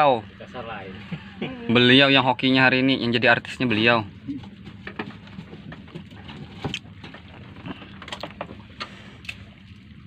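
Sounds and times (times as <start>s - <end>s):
motor humming low: 0.0s - 2.4s.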